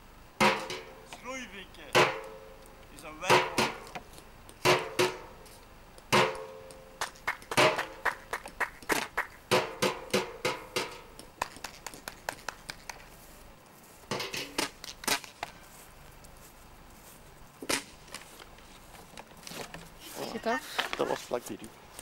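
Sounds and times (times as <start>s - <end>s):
wooden stick knocking: 1.9s - 5.4s, 6.0s - 13.0s.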